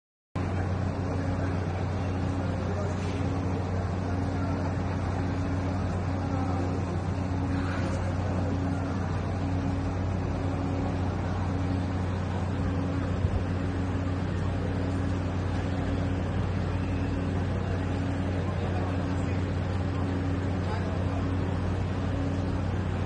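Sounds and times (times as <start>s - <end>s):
intermittent higher hum: 0.4s - 23.0s
low mechanical drone: 0.4s - 23.0s.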